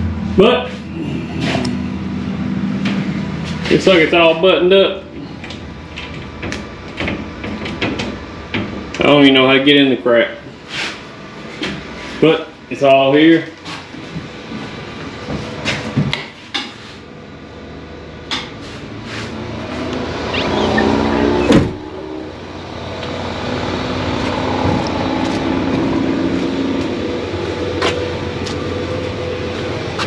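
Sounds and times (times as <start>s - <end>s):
steady low hum: 0.0s - 30.0s
sharp bump: 21.2s - 28.3s.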